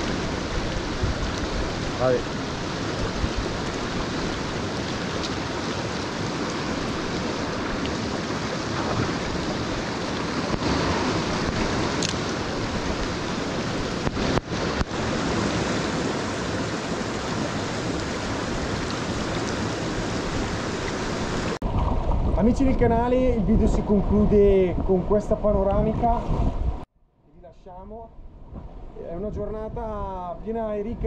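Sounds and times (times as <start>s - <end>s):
stream water rushing over rocks: 0.0s - 21.9s.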